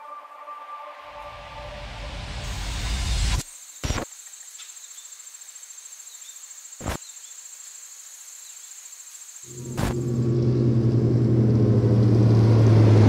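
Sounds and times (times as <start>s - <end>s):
low hum: 9.5s - 13.0s.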